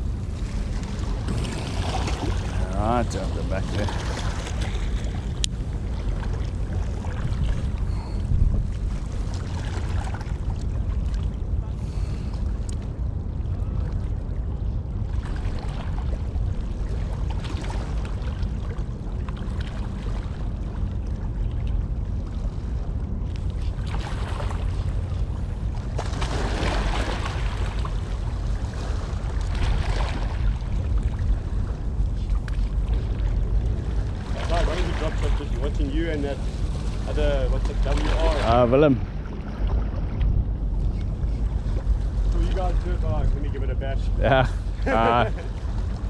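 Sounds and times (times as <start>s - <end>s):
wind buffeting microphone: 0.0s - 19.2s, 20.2s - 46.0s.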